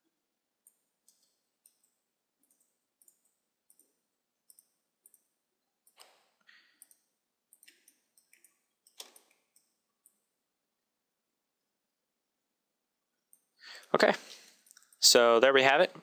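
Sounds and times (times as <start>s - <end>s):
computer mouse clicks: 0.6s - 10.2s, 13.2s - 15.0s.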